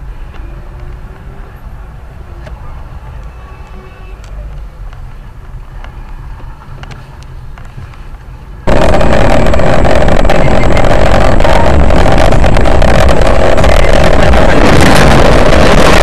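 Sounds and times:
vehicle rumble: 0.0s - 16.0s
loud overloaded noise: 8.6s - 16.0s.

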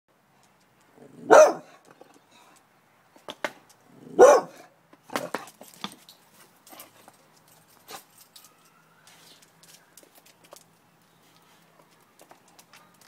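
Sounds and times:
dog barking: 1.2s - 1.7s, 4.1s - 4.7s.

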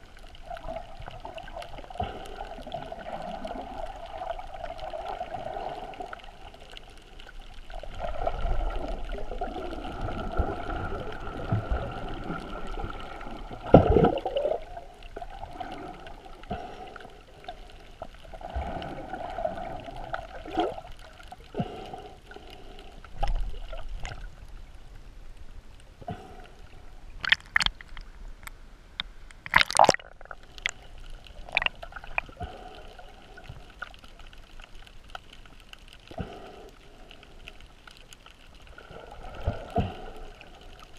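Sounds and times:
muffled underwater water sloshing: 0.0s - 40.9s.

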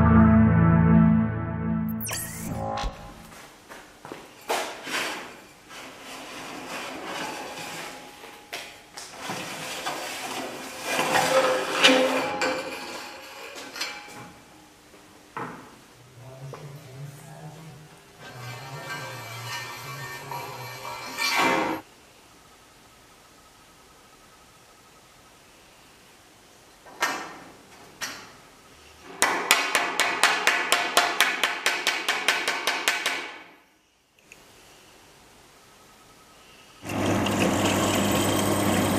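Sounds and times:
metal tube scraping and rattling: 18.2s - 21.8s.

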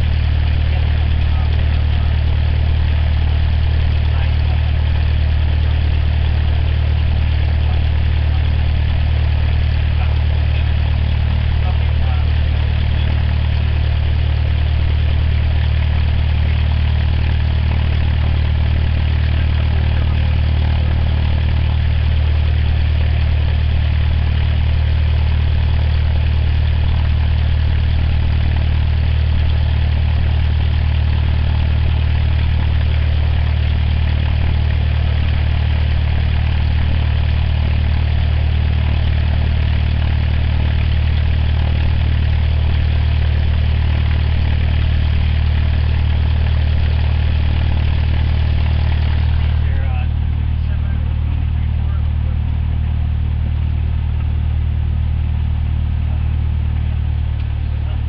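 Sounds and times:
propeller aircraft engine idling: 0.0s - 58.0s.

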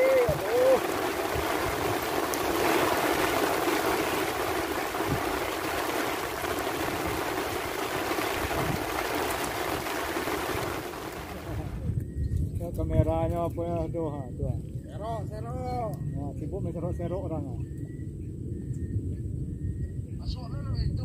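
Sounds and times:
steady rain falling: 0.0s - 11.9s.

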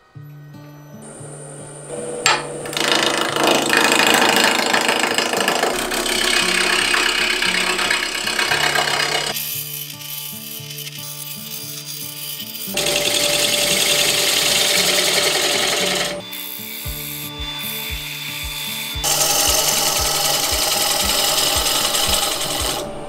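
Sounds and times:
lathe tool cutting wood: 1.1s - 23.0s
background music: 15.9s - 23.0s.

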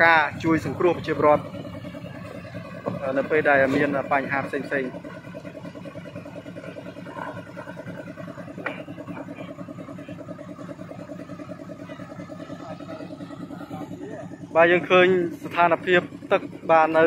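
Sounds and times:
truck engine idling: 0.0s - 17.0s.

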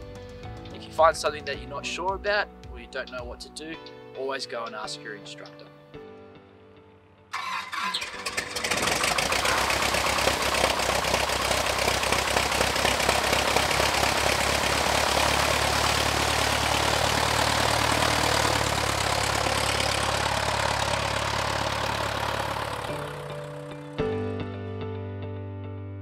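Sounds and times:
light aircraft engine idling: 7.4s - 23.9s.

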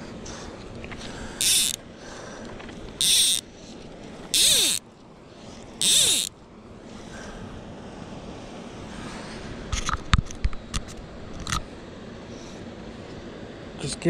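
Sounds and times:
fly line zipping rasp: 1.4s - 1.8s, 3.0s - 3.5s, 4.3s - 4.8s, 5.8s - 6.3s.

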